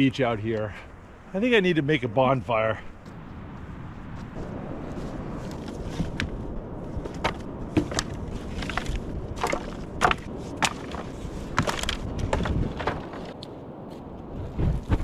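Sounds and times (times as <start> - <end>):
driftwood knocking together: 7.0 - 13.4.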